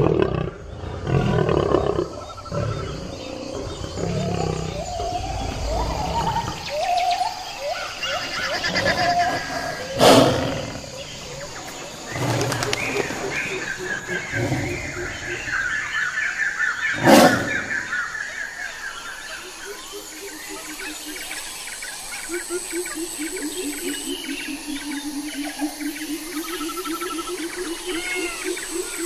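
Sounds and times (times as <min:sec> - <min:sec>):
lion growling: 0:00.0 - 0:06.8
birds chirping: 0:00.0 - 0:29.0.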